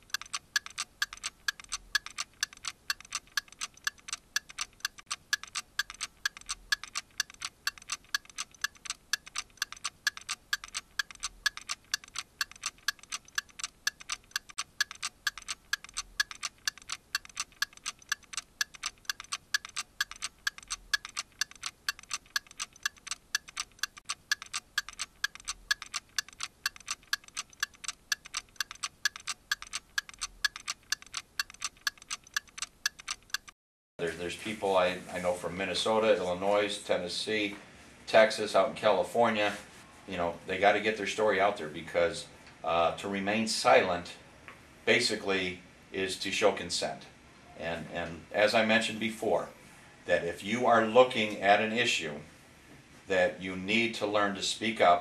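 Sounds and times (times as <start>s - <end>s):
clock ticking: 0.0s - 33.6s.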